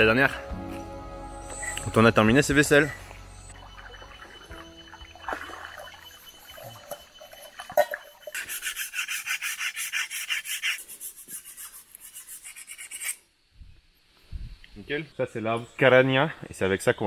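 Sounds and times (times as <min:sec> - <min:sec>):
machete scraping tree bark: 0:08.3 - 0:13.2.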